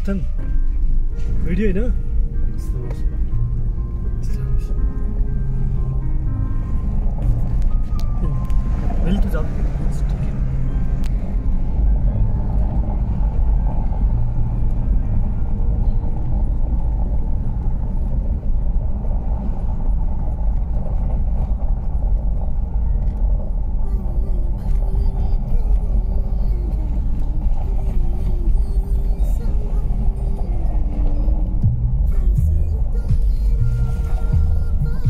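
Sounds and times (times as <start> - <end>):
car engine and road rumble: 0.0 - 35.0.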